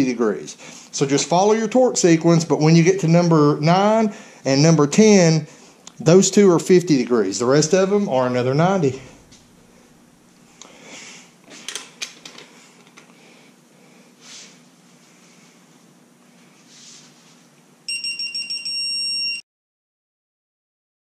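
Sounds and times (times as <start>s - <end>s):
digital wrench beeping: 17.9s - 19.4s.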